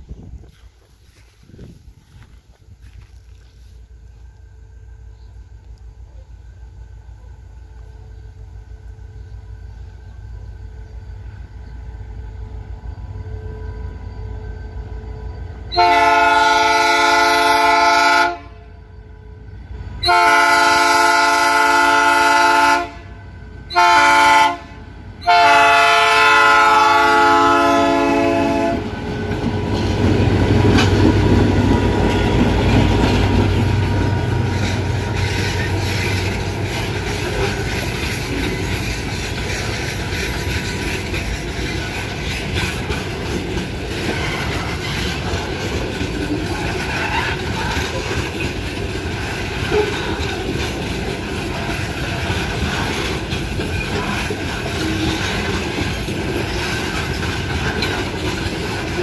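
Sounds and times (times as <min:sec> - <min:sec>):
deep locomotive engine rumble: 0:00.0 - 0:59.0
locomotive air horn blasts: 0:15.7 - 0:18.8, 0:20.0 - 0:28.9
train wagons clickety-clack on rails: 0:19.4 - 0:59.0.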